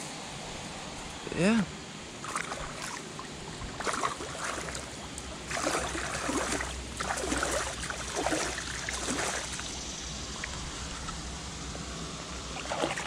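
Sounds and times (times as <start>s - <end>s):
low steady rumble: 0.0s - 13.0s
gurgling splashes: 2.2s - 11.2s, 12.5s - 13.0s
water sloshing against boat hull: 2.2s - 11.3s, 12.6s - 13.0s.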